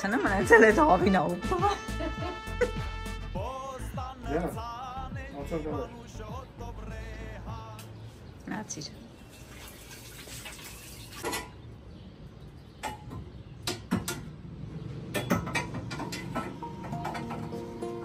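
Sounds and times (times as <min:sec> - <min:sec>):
utensils and dishes clinking: 0:09.2 - 0:11.6, 0:15.1 - 0:18.0.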